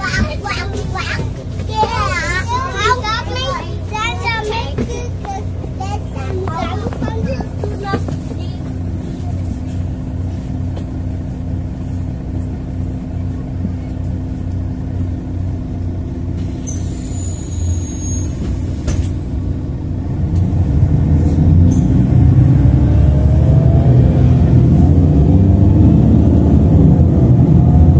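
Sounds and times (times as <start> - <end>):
bus engine: 0.0 - 27.9
high falling squeal: 16.6 - 18.7.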